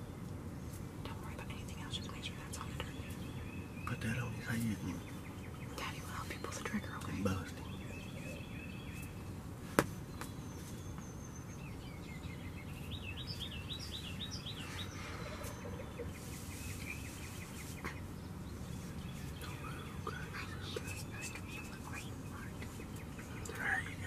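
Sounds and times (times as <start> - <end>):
songbirds chirping: 0.0 - 24.0.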